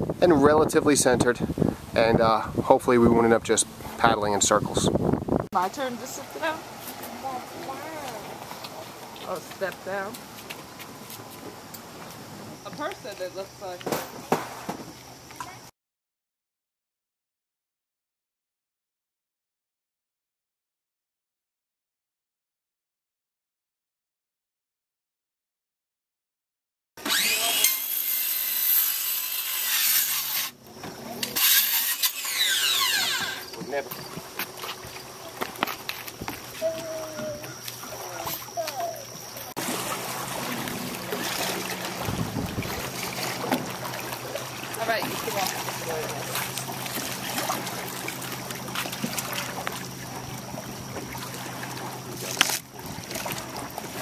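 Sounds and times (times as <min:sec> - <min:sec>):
water lapping on rocks: 0:05.6 - 0:15.3, 0:31.6 - 0:54.0
power saw cutting wood: 0:27.0 - 0:30.6, 0:31.3 - 0:33.5
boat scraping over rock: 0:27.0 - 0:38.6, 0:39.4 - 0:54.0.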